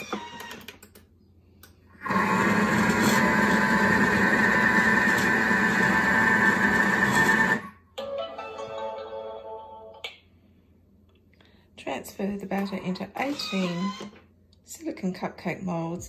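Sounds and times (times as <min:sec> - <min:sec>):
food processor motor running: 0:02.0 - 0:07.7.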